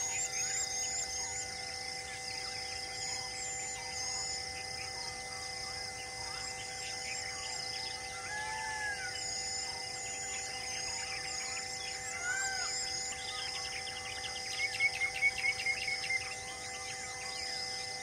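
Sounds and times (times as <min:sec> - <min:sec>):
steady humming tones: 0:00.0 - 0:18.0
birds chirping: 0:06.0 - 0:18.0.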